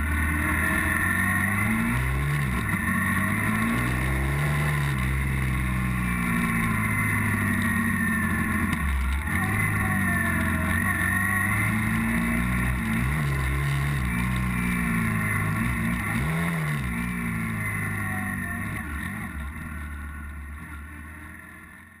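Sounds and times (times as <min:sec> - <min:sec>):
motorcycle engine revving: 0:00.0 - 0:22.0
wind and road noise: 0:00.0 - 0:22.0.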